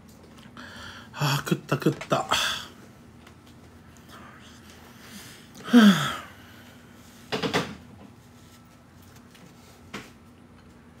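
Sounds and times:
man groaning: 0:05.6 - 0:06.4.

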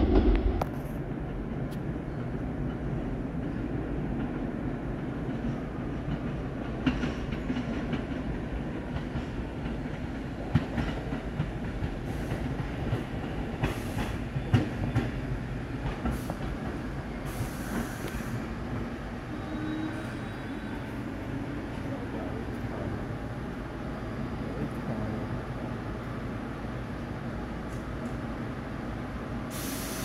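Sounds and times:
train rumbling on track: 0:00.0 - 0:30.0
high hiss: 0:29.5 - 0:30.0.

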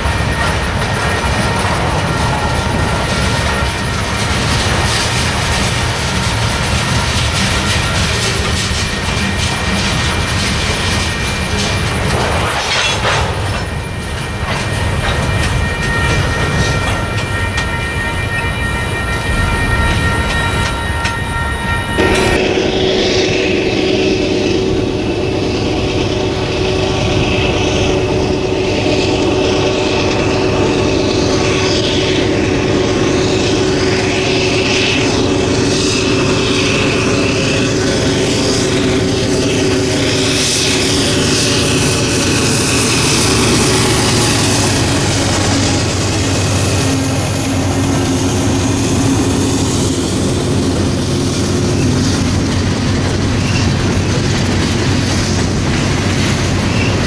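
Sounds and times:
wheels clacking over rail joints: 0:00.0 - 0:18.8, 0:24.7 - 0:57.0
diesel locomotives droning: 0:00.0 - 0:57.0
steady high tones: 0:13.7 - 0:51.8.

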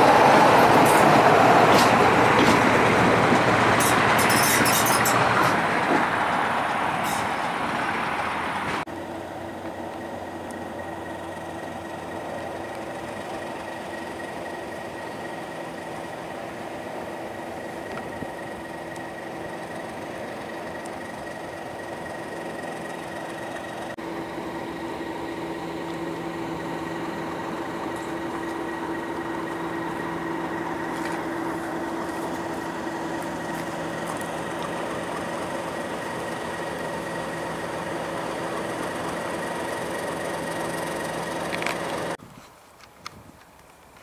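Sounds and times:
diesel locomotive engine idling: 0:00.0 - 0:44.0.

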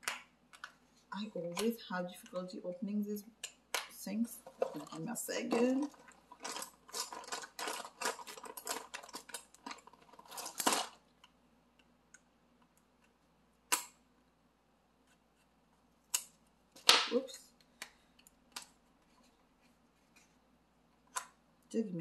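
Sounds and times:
packaging clicks and rustles: 0:04.3 - 0:11.4.

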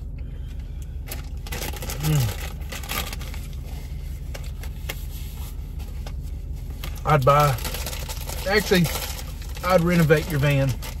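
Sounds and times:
steady low hum: 0:00.0 - 0:11.0
person murmuring mm: 0:02.0 - 0:02.4
food packaging rustling: 0:05.9 - 0:11.0.

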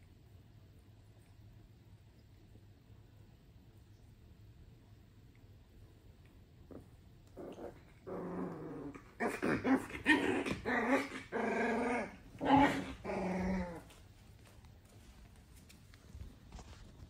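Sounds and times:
puppies growling and whining: 0:06.7 - 0:14.0.

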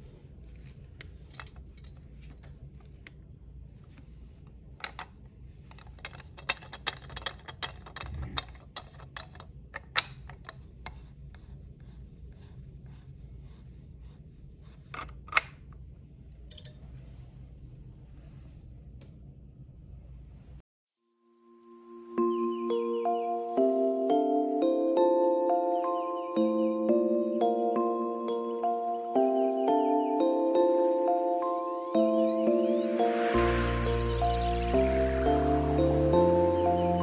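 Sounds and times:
plastic clamp clicks and rubbing: 0:04.8 - 0:11.0
low steady hum: 0:28.2 - 0:37.0.

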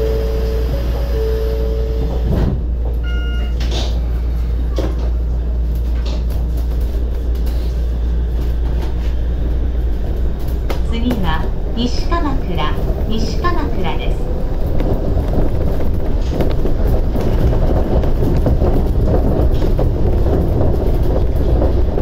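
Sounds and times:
train low rumble: 0:00.0 - 0:22.0
electronic beep: 0:03.0 - 0:03.6.

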